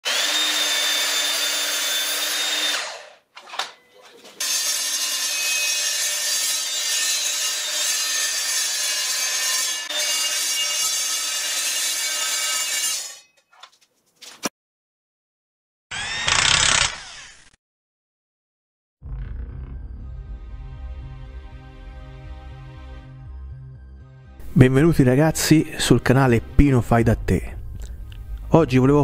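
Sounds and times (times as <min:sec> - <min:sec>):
saw blade high whine: 0:00.0 - 0:03.2
mitre saw cutting steel tube: 0:00.0 - 0:03.8, 0:04.4 - 0:13.4
mitre saw cutting timber: 0:00.0 - 0:03.8, 0:04.4 - 0:13.3, 0:15.9 - 0:17.6.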